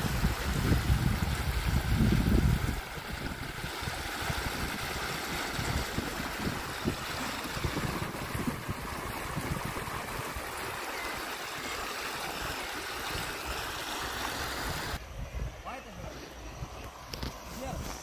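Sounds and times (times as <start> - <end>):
wind buffeting microphone: 0.0 - 11.3
water splashing: 0.0 - 15.0
river current over riffle: 0.0 - 18.0.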